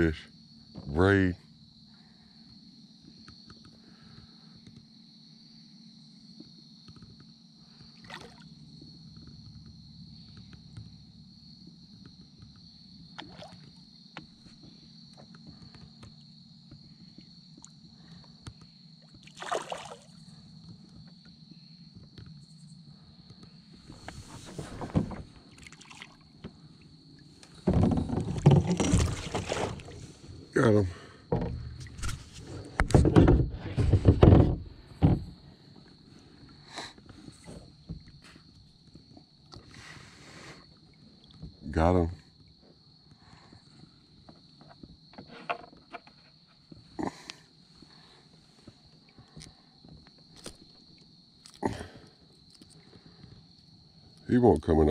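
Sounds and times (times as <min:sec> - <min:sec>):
fish splashing at surface: 0:19.3 - 0:20.1
knocking: 0:31.3 - 0:35.4
small ticks: 0:48.6 - 0:54.3.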